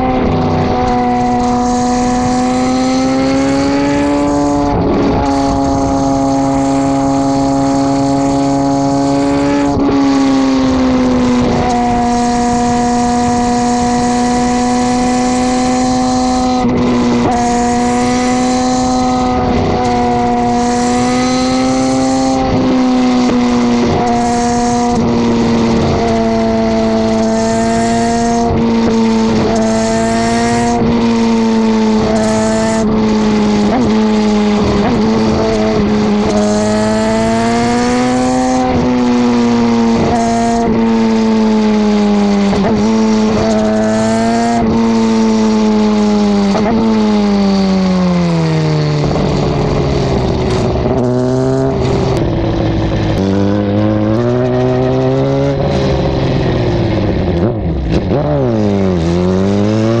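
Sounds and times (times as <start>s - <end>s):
wind rush on microphone: 0.0s - 45.3s
motorcycle engine revving: 0.0s - 60.0s.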